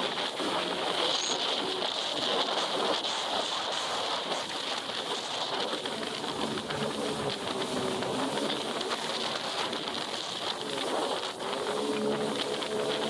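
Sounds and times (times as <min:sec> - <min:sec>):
jet ski running at speed: 0:00.0 - 0:13.0
water spray: 0:00.0 - 0:13.0
wind on microphone: 0:00.0 - 0:13.0.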